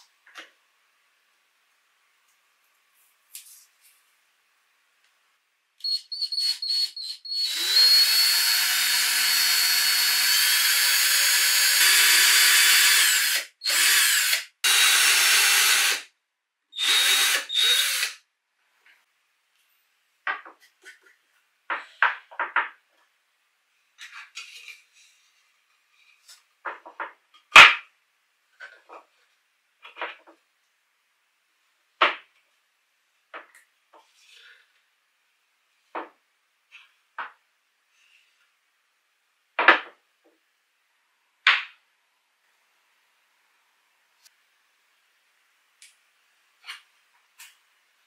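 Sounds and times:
electric drill boring into wood: 5.9s - 16.0s, 16.8s - 18.2s.

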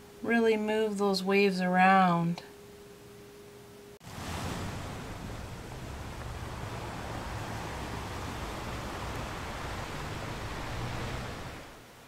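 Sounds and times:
ocean waves rushing: 4.0s - 11.9s.

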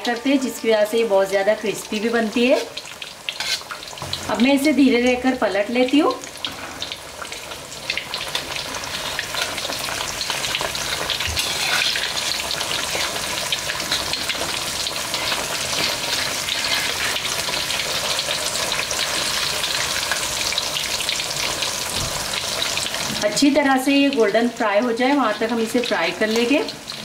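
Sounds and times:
fish deep-frying in oil: 0.0s - 27.0s.

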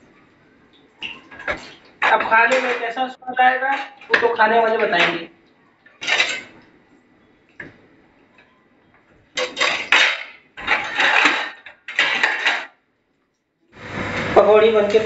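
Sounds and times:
batter sizzling in hot oil: 13.8s - 15.0s.

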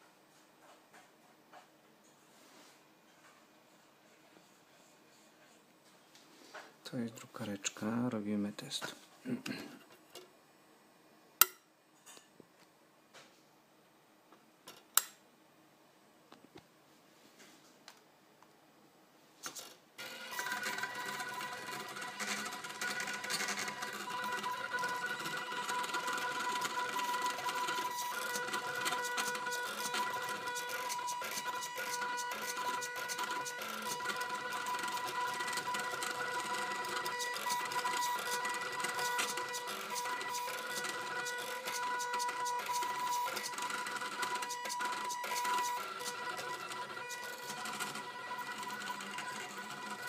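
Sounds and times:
stepper motors whining: 20.0s - 50.0s.

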